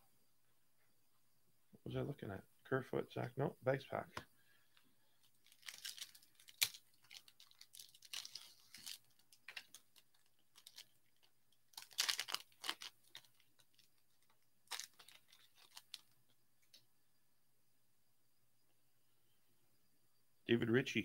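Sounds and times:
wrapper crinkling and tearing: 0:05.2 - 0:16.2.

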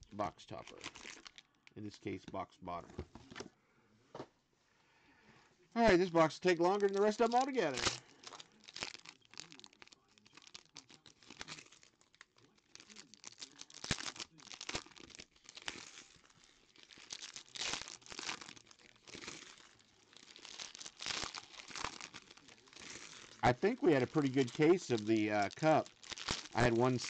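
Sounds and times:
foil wrappers crinkling and tearing: 0:00.6 - 0:01.5, 0:05.8 - 0:27.0.

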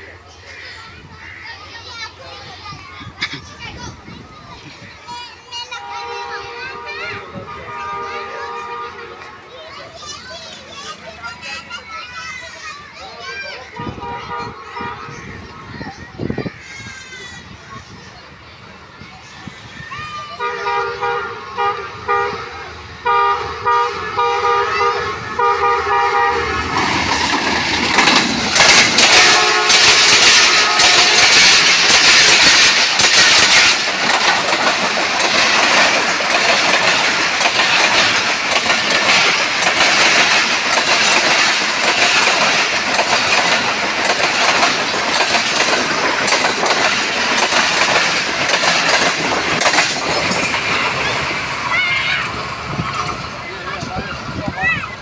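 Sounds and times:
train wheel clatter on rails: 0:00.6 - 0:22.3, 0:23.1 - 0:55.0
locomotive horn: 0:05.8 - 0:09.2, 0:13.8 - 0:15.3, 0:20.4 - 0:26.8, 0:29.0 - 0:31.8
locomotive thundering past: 0:19.8 - 0:55.0.

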